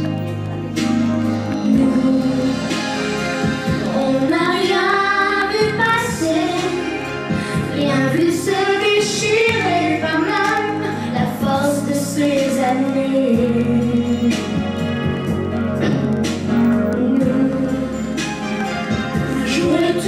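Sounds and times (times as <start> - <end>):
backing music: 0.0 - 20.0
girl singing: 3.9 - 14.6, 19.4 - 20.0.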